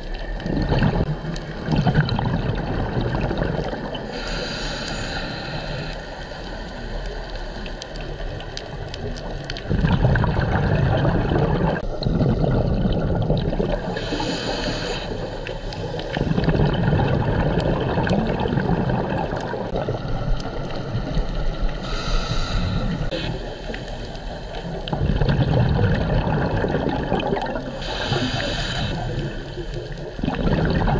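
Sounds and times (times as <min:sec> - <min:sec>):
underwater bubbles gurgling: 0:00.0 - 0:30.9
regulator inhalation hiss: 0:04.1 - 0:07.8, 0:13.8 - 0:16.2, 0:21.8 - 0:24.9, 0:27.7 - 0:30.2.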